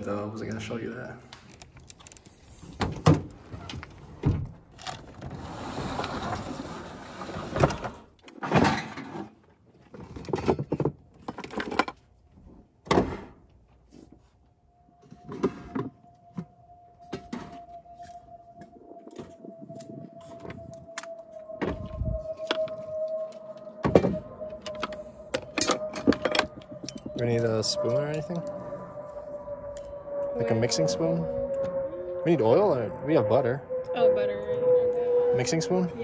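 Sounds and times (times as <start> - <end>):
rustling and sliding: 5.1 - 8.0.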